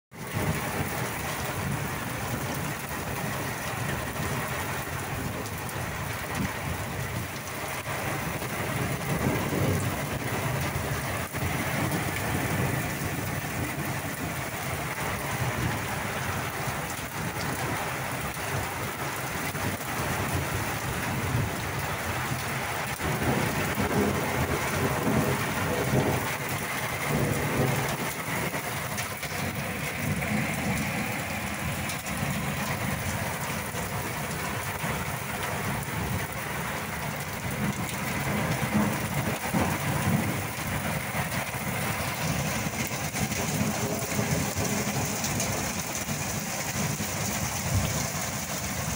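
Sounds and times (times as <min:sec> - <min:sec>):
heavy rain on roof tiles: 0:00.1 - 0:48.9.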